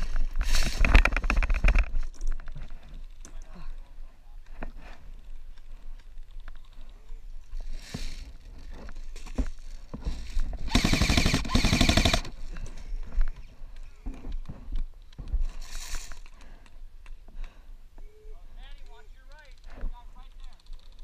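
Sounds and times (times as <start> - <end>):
airsoft rifle rapid burst: 10.7 - 12.3.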